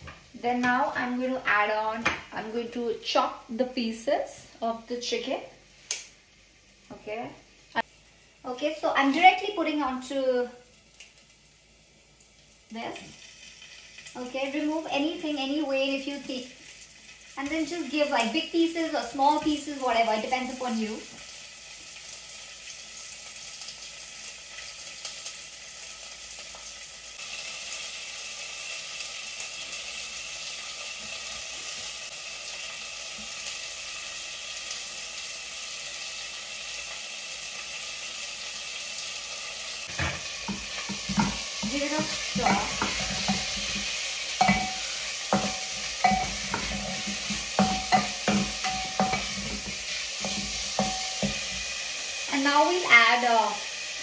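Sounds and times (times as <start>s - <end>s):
chicken sizzling in hot oil: 0.0s - 54.0s
spatula scraping a pot: 40.1s - 51.7s.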